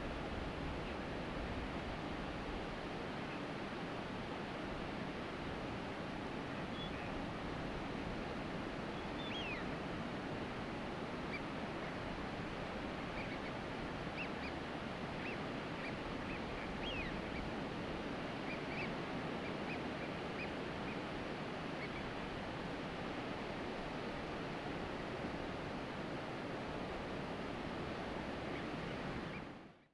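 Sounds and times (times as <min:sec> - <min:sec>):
ducks whistling calls: 0:18.5 - 0:20.6.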